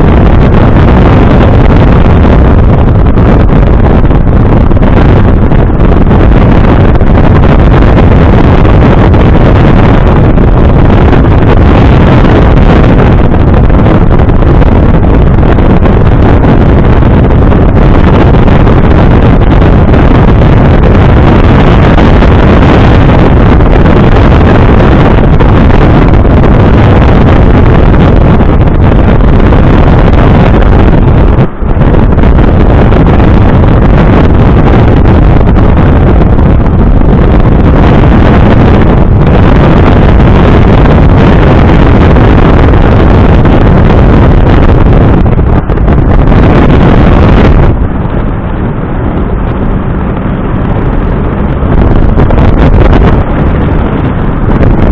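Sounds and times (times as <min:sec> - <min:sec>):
road noise: 0:00.0 - 0:54.9
wind noise on microphone: 0:00.0 - 0:54.9
car engine: 0:44.9 - 0:54.7.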